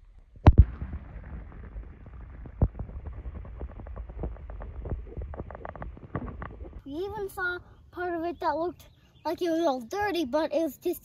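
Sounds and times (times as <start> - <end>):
muffled underwater rumble: 0.0 - 7.8
double splash: 0.4 - 6.8
small underwater clicks: 2.4 - 6.8.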